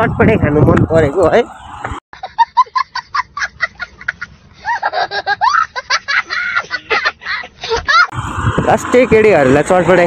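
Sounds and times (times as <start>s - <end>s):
child laughing hysterically: 2.2s - 8.1s.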